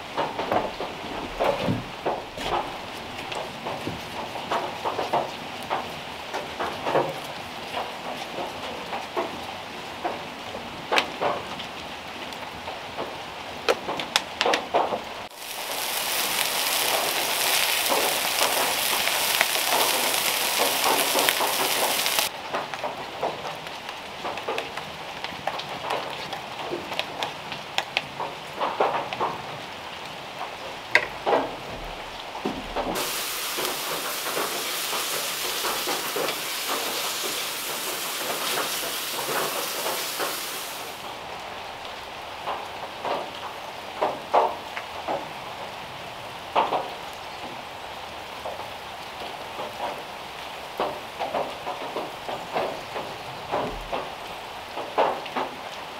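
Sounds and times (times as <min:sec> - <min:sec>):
food sizzling on a griddle: 0:15.3 - 0:22.3, 0:32.9 - 0:41.1.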